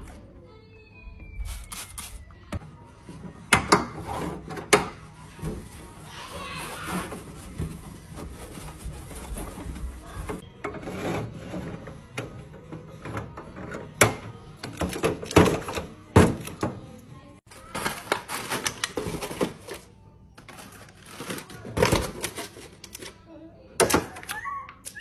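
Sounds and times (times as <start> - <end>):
plastic packages clacking: 17.6 - 23.2.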